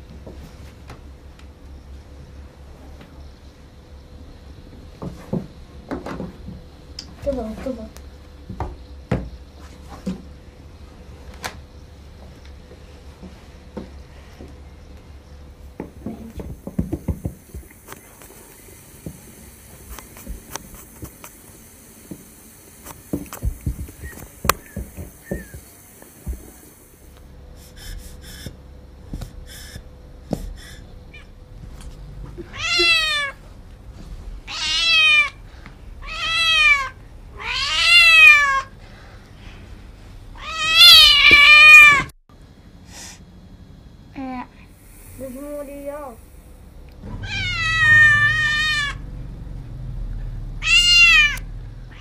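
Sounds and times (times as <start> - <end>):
cat meowing loudly: 32.5 - 33.4, 34.5 - 35.4, 36.0 - 38.7, 40.4 - 42.1, 47.2 - 49.0, 50.6 - 52.0.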